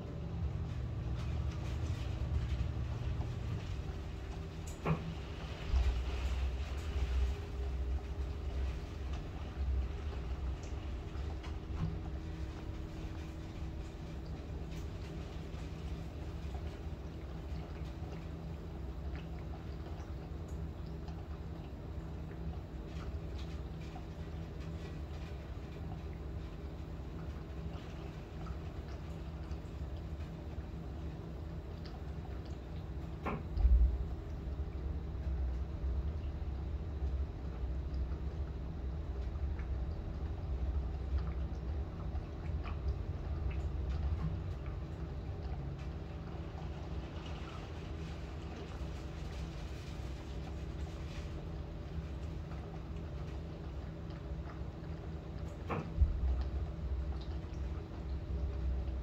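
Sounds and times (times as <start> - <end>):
low rumble of wind: 0.0 - 59.0
rain taps and drips: 0.0 - 59.0.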